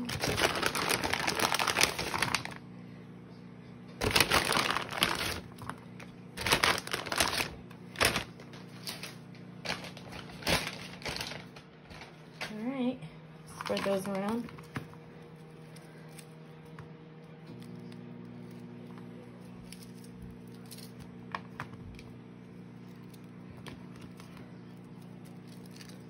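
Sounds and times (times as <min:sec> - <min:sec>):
plastic bag crinkling: 0:00.0 - 0:02.6, 0:04.0 - 0:12.6, 0:13.5 - 0:14.8, 0:24.1 - 0:26.0.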